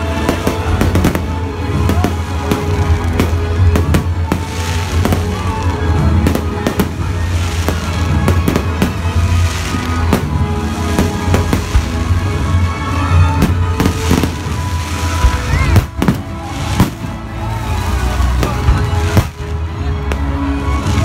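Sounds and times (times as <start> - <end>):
fireworks bangs and crackles: 0.0 - 21.0.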